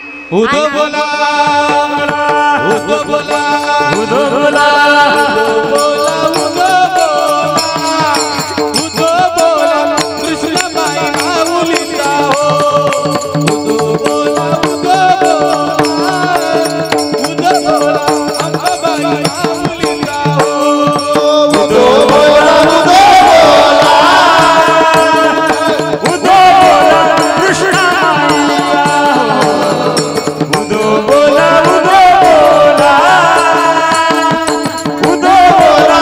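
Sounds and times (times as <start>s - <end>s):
hand cymbals: 0.0s - 36.0s
barrel drum: 0.3s - 36.0s
voices chanting: 21.6s - 25.5s.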